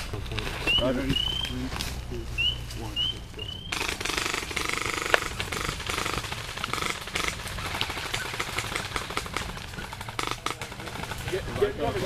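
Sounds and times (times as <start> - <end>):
airsoft guns firing: 3.7 - 12.0.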